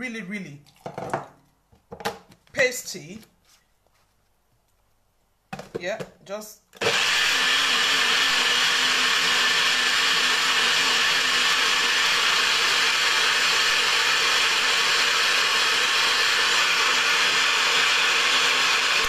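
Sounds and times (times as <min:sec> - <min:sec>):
blender motor whirring: 0:06.8 - 0:19.0.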